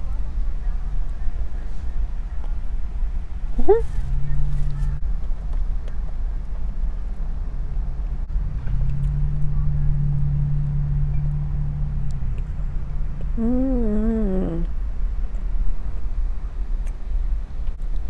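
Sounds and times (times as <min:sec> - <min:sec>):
low rumble inside car: 0:00.0 - 0:18.0
woman humming while chewing: 0:13.2 - 0:14.7.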